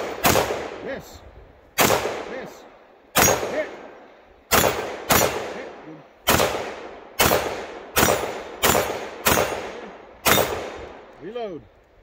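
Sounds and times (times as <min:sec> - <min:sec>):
pistol shots: 0:00.0 - 0:00.9, 0:01.8 - 0:02.5, 0:03.1 - 0:11.2.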